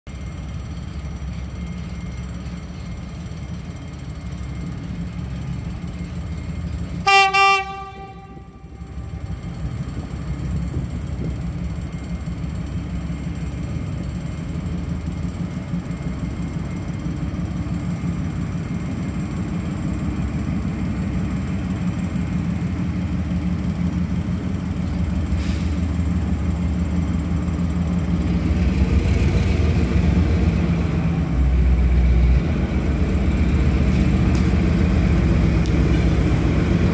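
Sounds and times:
locomotive engine rumbling: 0:00.1 - 0:36.9
rail noise: 0:00.1 - 0:36.9
train horn blast: 0:07.0 - 0:09.1.

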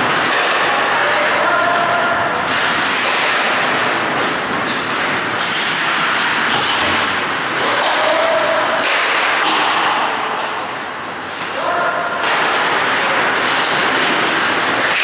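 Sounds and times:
hockey sticks clacking: 0:00.0 - 0:15.0
skate blades scraping ice: 0:02.5 - 0:09.0, 0:12.2 - 0:15.0.

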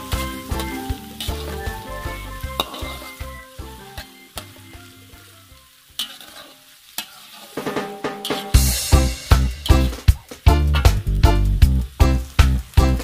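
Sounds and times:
metal spatula scraping pan: 0:00.0 - 0:03.3, 0:06.0 - 0:08.7
background music: 0:00.0 - 0:05.9, 0:07.6 - 0:13.0
oil sizzling in wok: 0:00.0 - 0:13.0.

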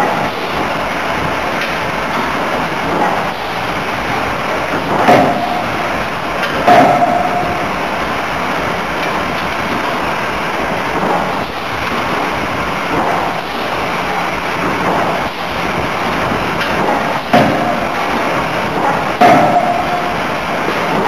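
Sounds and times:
forging machinery running: 0:00.0 - 0:21.0
sharp metal clang: 0:06.6 - 0:07.8.

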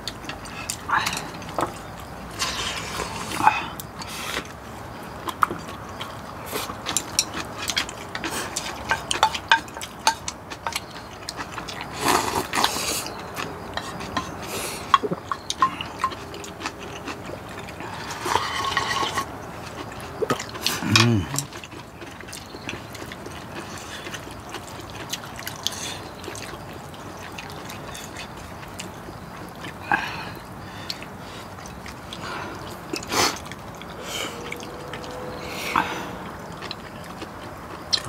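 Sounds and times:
chopsticks clicking against bowls: 0:06.9 - 0:11.8, 0:12.5 - 0:17.1
soup slurping: 0:30.9 - 0:38.0.

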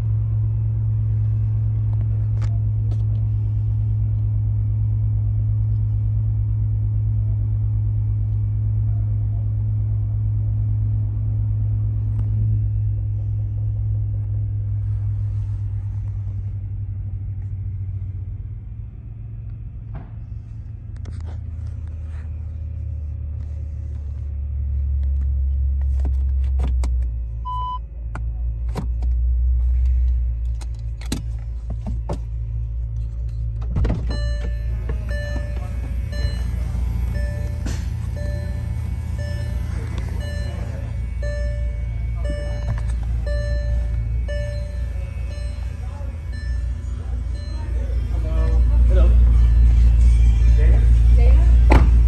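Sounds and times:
car engine idling: 0:00.0 - 0:52.0
short electronic beep: 0:34.1 - 0:51.7.

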